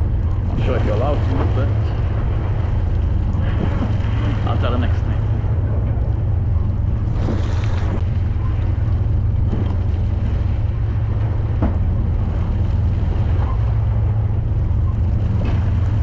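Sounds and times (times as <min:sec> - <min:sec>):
boat engine droning: 0:00.0 - 0:16.0
water noise: 0:00.0 - 0:16.0
wind: 0:00.0 - 0:16.0.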